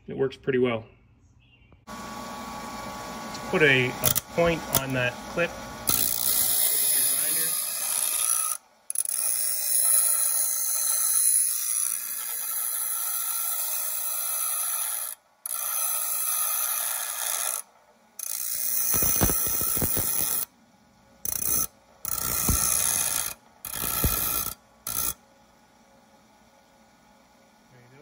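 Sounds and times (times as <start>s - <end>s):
belt sander grinding steel: 1.9s - 20.5s, 21.2s - 25.2s.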